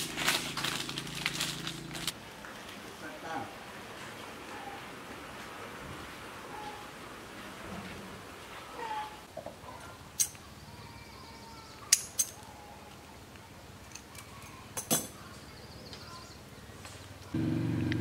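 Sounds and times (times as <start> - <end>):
faint bird chirps: 9.8 - 13.1.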